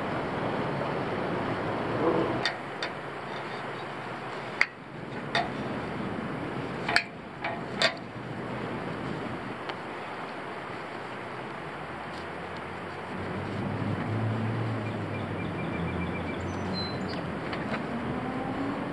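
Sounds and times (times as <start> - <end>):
steady hiss: 0.0 - 15.1
metal fittings clicking on pole: 2.4 - 5.8, 6.8 - 8.1.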